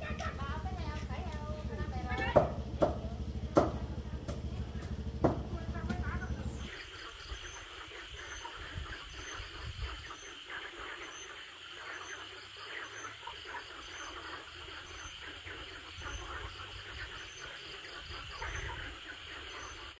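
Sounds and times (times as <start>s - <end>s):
low rumble: 0.0s - 6.7s
insects chirping: 0.0s - 20.0s.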